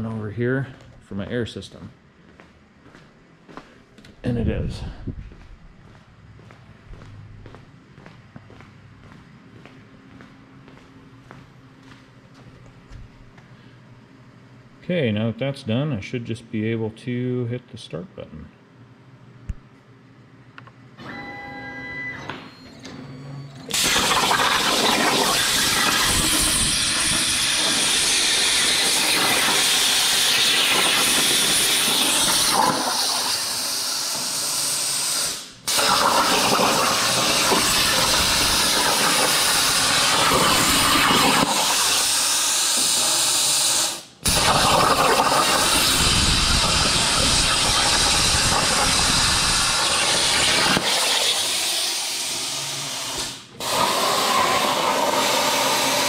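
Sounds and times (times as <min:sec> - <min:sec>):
plasma cutter torch hissing: 0:23.7 - 0:56.0.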